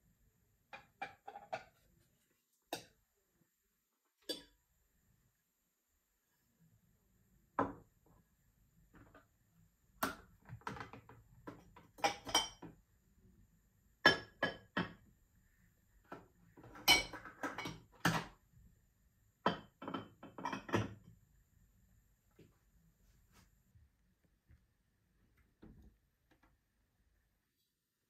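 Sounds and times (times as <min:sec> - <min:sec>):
glass dishes clinking: 0:12.0 - 0:12.7, 0:16.8 - 0:17.9, 0:19.5 - 0:21.0.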